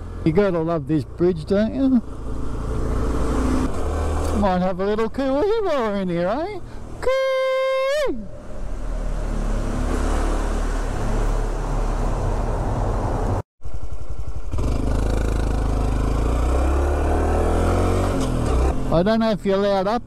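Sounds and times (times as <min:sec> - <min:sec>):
motorcycle engine running: 0:13.6 - 0:17.2.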